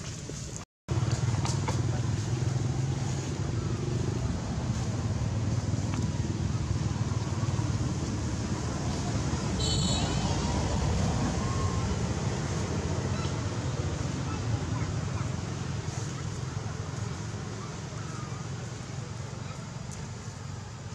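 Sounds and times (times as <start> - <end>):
low engine rumble: 0.1 - 20.9.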